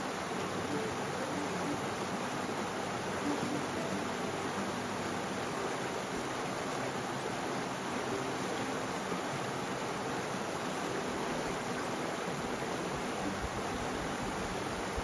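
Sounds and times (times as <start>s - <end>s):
steady rushing water: 0.0s - 15.0s.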